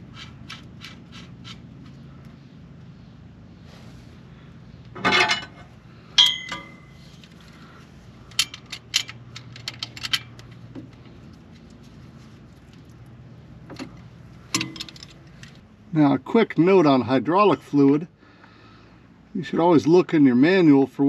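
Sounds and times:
metal tools clattering: 5.0 - 7.0
metal clink ringing: 6.2 - 6.9.

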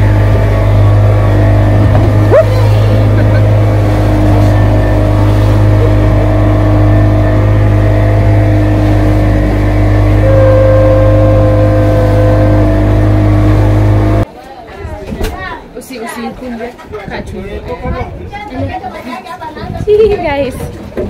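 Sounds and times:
motorboat engine drone: 0.0 - 14.3.

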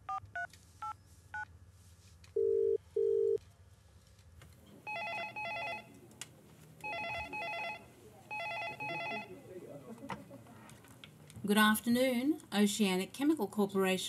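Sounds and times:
telephone ringing electronic trill: 4.9 - 5.8
phone ringback beeps: 4.9 - 5.9, 6.8 - 9.3.

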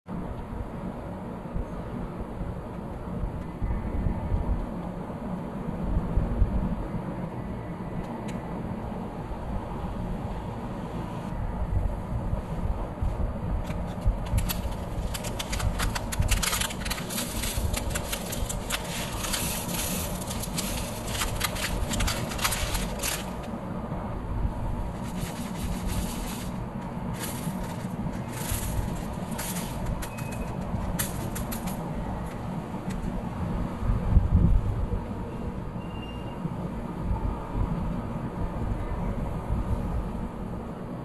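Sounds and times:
steady low rumble: 0.1 - 35.8, 36.4 - 41.0
tiny beads rattling into plastic tray: 14.2 - 23.5, 25.0 - 31.8.

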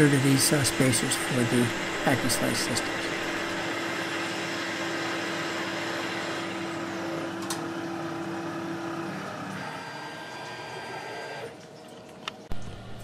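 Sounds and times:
lathe spindle whine and hum: 0.0 - 11.6.

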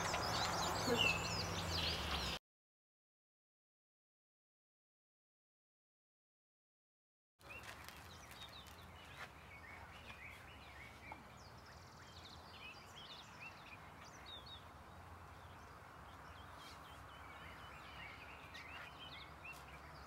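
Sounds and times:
birds chirping and whistling: 0.0 - 2.4, 7.4 - 20.0.

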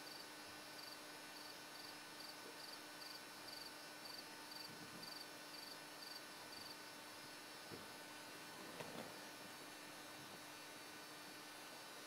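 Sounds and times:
cricket chirping: 0.0 - 7.0
low hiss: 0.0 - 12.0.

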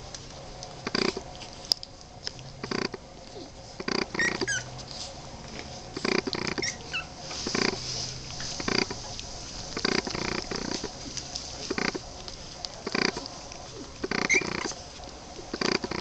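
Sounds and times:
puppies grunting: 0.0 - 16.0
puppies squeaking: 2.6 - 4.8, 6.0 - 12.0, 12.7 - 16.0.

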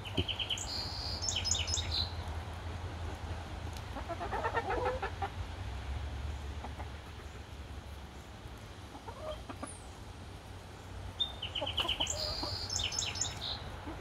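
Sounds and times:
hens clucking softly: 3.1 - 5.4, 6.5 - 7.5, 8.8 - 9.9, 11.4 - 14.0.

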